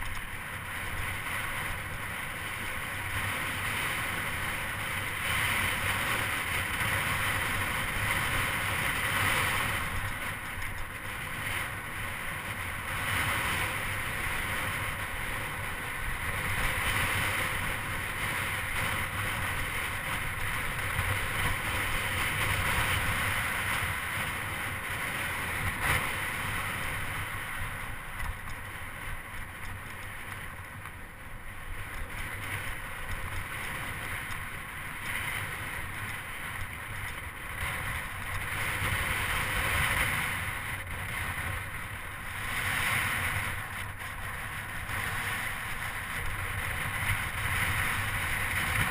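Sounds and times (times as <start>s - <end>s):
tyres rolling on asphalt: 0.0s - 48.9s
wind on microphone: 31.5s - 48.9s.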